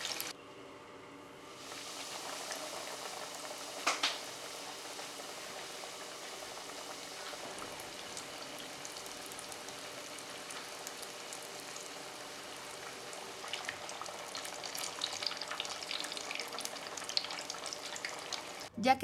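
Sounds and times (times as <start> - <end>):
deep-frying sizzle: 0.0 - 0.3, 1.5 - 18.7
crackling oil pops: 3.8 - 4.2.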